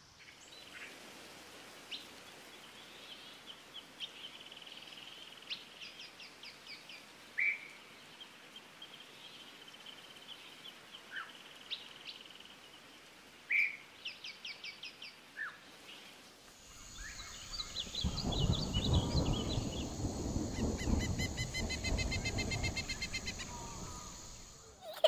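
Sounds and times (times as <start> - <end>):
birds chirping: 16.6 - 25.0.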